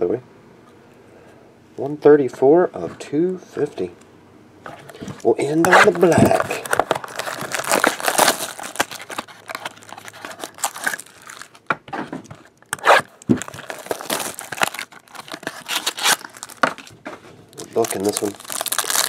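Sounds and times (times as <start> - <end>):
plastic shrink-wrap tearing: 5.2 - 11.6, 12.7 - 16.9, 17.5 - 19.0.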